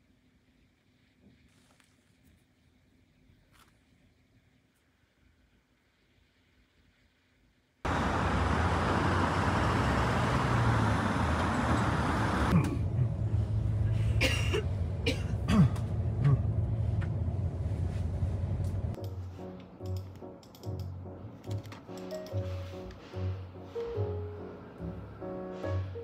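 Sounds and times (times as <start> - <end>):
street traffic rushing: 7.9 - 19.0, 21.0 - 26.0
moving bus hum: 7.9 - 26.0.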